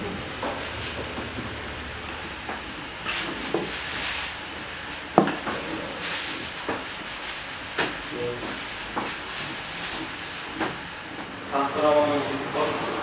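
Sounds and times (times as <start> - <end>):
utensils knocking and tapping: 5.1 - 7.0.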